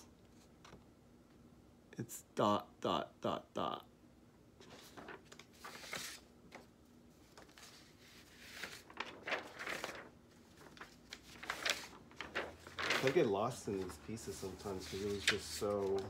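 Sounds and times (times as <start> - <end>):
paper rustling and crinkling: 4.6 - 16.0.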